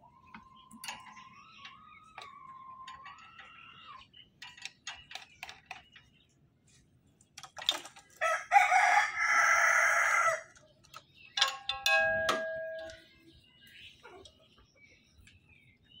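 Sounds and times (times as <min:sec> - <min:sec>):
rooster crowing: 0:08.2 - 0:10.5
sharp metallic clinks ringing: 0:11.2 - 0:13.3.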